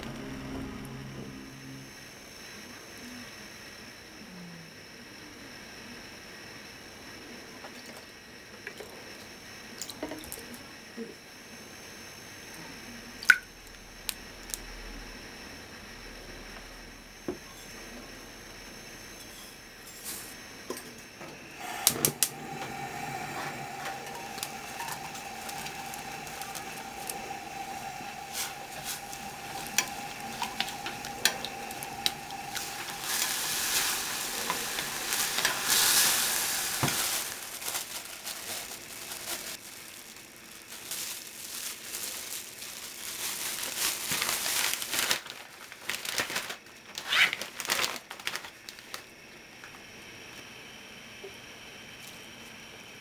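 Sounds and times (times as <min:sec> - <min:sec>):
liquid bubbling and sizzling in pot: 0:13.2 - 0:45.2
plastic bag crinkling: 0:23.6 - 0:49.0.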